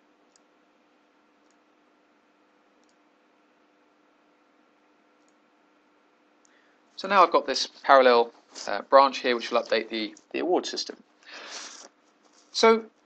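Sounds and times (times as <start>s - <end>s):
faint steady hum: 0.0s - 13.0s
computer mouse clicks: 0.3s - 0.5s, 2.8s - 3.0s.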